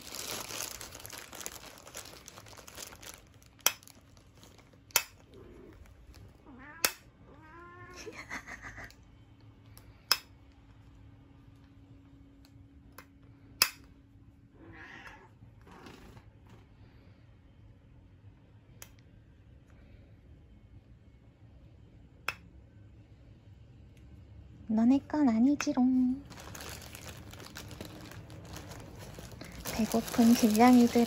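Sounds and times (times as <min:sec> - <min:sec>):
plastic bag crinkling: 0:00.0 - 0:06.4, 0:26.2 - 0:31.0
cat meowing: 0:06.4 - 0:08.2, 0:14.6 - 0:15.4.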